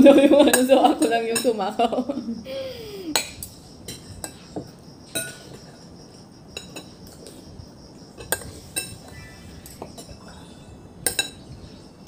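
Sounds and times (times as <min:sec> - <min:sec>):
cutlery clinking on a plate: 0:03.2 - 0:05.6, 0:06.6 - 0:07.0, 0:08.2 - 0:09.0, 0:11.0 - 0:11.5.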